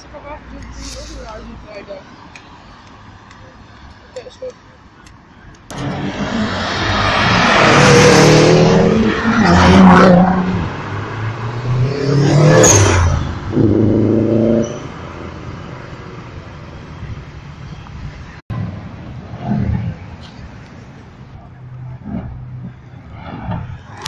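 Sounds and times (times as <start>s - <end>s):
cars accelerating past: 5.7s - 16.2s.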